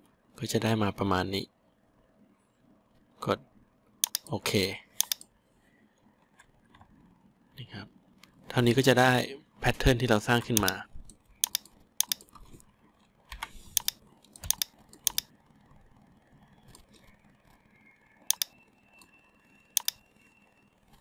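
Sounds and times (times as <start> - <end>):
computer mouse clicks: 4.0 - 4.4, 5.0 - 5.3, 10.4 - 15.4, 16.6 - 17.6, 18.2 - 20.0.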